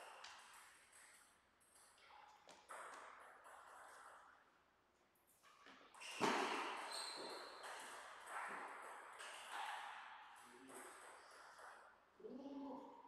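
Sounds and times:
loud thump in a large hall: 0:06.2 - 0:06.9.

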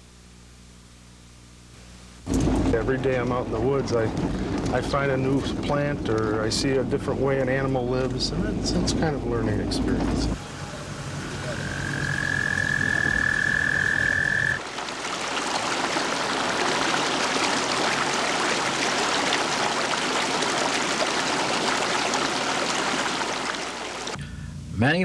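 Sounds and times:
frog trilling: 0:10.4 - 0:14.6
chorus of frogs calling: 0:10.4 - 0:24.2.

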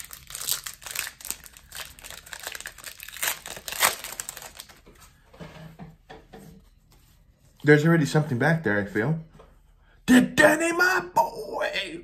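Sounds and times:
foil wrapper crinkling: 0:00.0 - 0:04.9.

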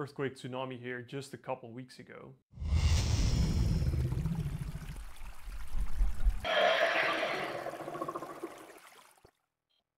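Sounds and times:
water gushing: 0:03.7 - 0:09.2.

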